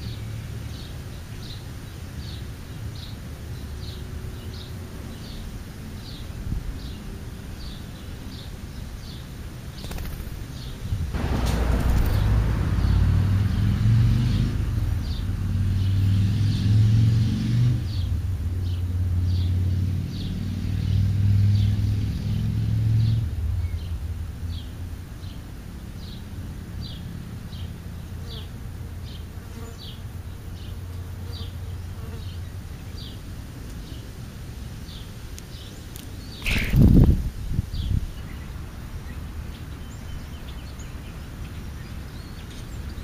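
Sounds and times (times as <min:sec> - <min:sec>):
flying insect buzzing: 0:09.8 - 0:10.6.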